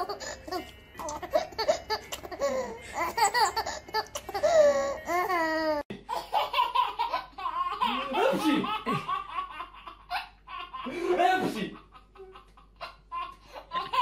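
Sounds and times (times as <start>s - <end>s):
another baby laughing: 0.0s - 14.0s
baby laughing and squealing: 12.2s - 14.0s.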